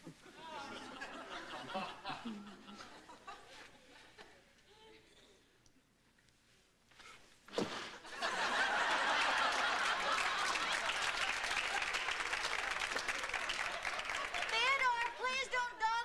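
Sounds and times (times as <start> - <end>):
studio audience laughter and applause: 0.4 - 3.5, 8.0 - 15.6.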